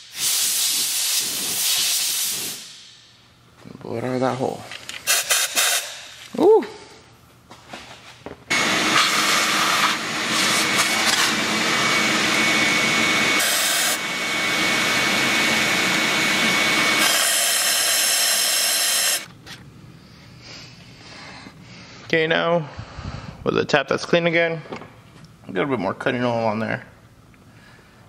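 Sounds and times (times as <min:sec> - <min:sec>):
compressed air blow gun hissing: 0:17.0 - 0:19.3.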